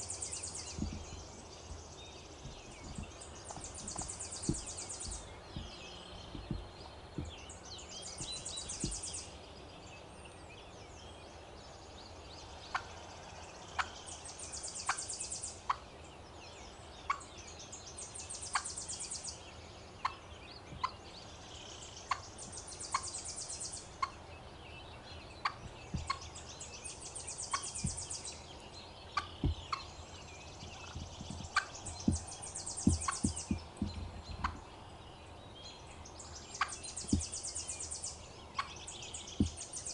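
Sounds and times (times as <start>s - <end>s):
turkey clucking: 25.4s - 26.2s, 30.8s - 32.2s.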